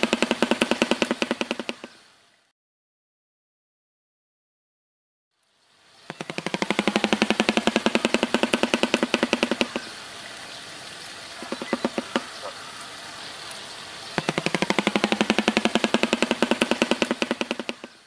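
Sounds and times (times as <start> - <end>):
bird bill clattering: 6.1 - 9.9, 11.4 - 12.5, 14.2 - 18.0.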